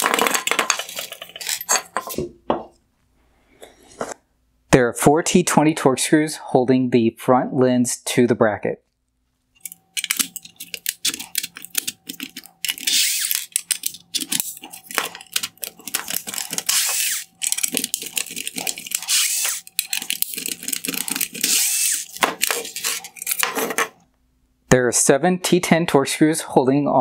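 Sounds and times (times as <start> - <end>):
screwdriver clicking and rasping: 9.6 - 23.7.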